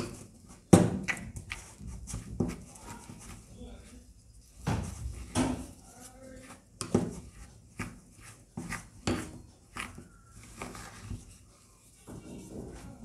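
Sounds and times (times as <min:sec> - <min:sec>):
plastic spoon scraping glass bowl: 0:04.9 - 0:13.0.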